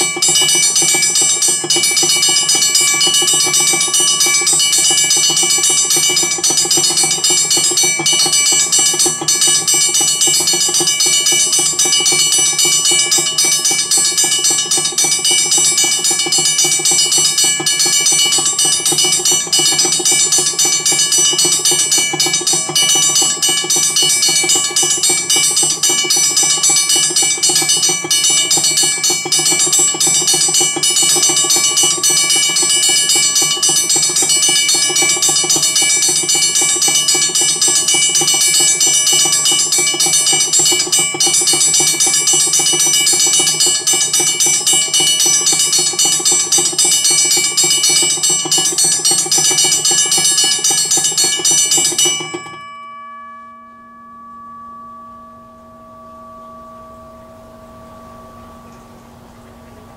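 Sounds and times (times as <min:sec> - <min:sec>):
crossing bell rapid ringing: 0:00.0 - 0:59.9.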